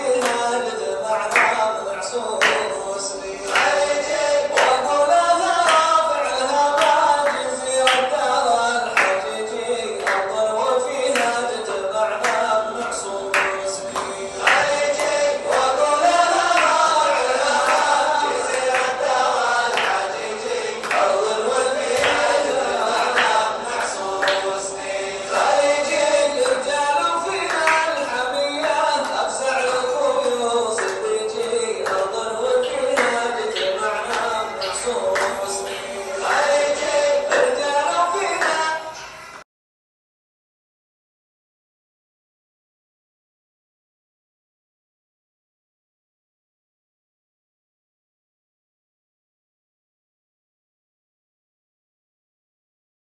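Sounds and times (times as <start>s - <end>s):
clapped beat: 0.0s - 38.8s
group chanting: 0.0s - 39.0s
person singing: 0.0s - 39.2s
drum beats: 19.8s - 24.6s.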